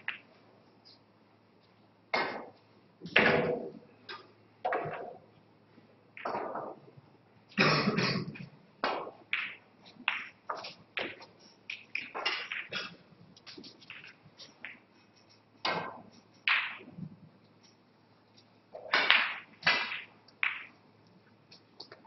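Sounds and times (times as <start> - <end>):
snooker balls clicking: 0.0 - 0.4, 1.6 - 5.3, 6.2 - 7.0, 8.3 - 22.0
people coughing: 7.6 - 8.4.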